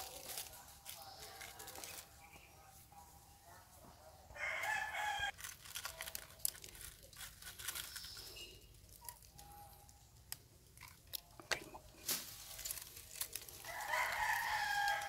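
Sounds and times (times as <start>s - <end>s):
dry leaves rustling: 0.0s - 3.3s, 4.4s - 10.3s, 11.1s - 15.0s
rooster crowing: 4.4s - 5.3s, 13.6s - 15.0s.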